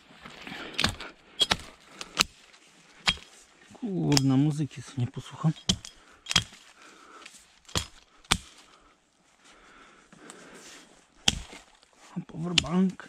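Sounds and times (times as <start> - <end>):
hatchet chopping branches: 0.8 - 2.4, 3.0 - 3.4, 4.0 - 4.4, 5.4 - 6.6, 7.6 - 8.7, 11.2 - 11.7, 12.4 - 13.0.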